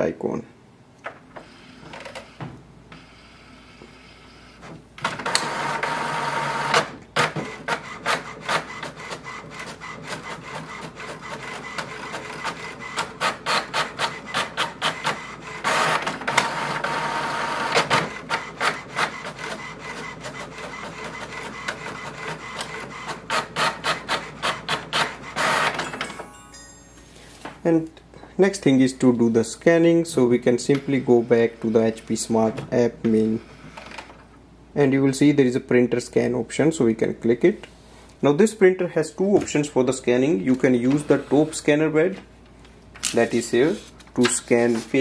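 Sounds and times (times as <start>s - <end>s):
printer motor whirring: 1.4s - 25.8s, 40.8s - 41.6s.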